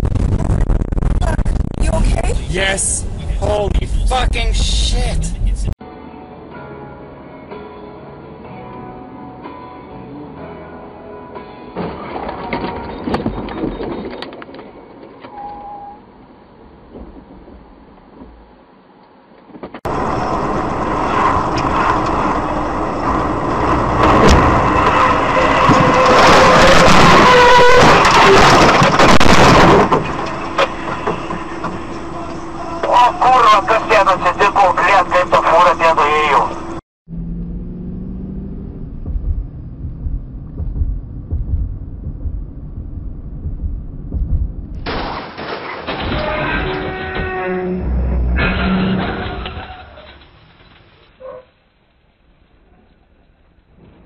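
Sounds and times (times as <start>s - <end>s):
vehicle road and engine noise: 12.0s - 44.8s, 46.6s - 51.4s
low buffeting: 19.9s - 44.8s, 46.9s - 49.6s.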